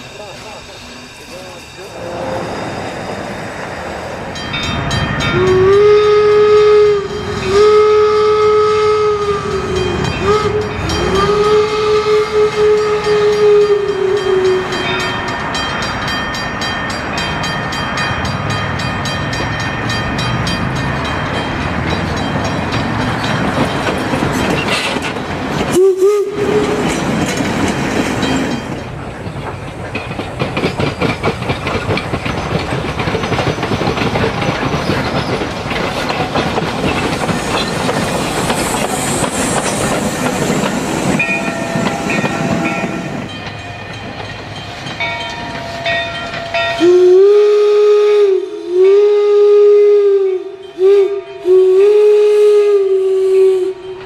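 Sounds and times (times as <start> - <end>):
steam locomotive whistle blowing: 0.0 - 3.3, 5.2 - 15.4, 25.7 - 27.0, 45.8 - 54.0
train running noise: 0.0 - 54.0.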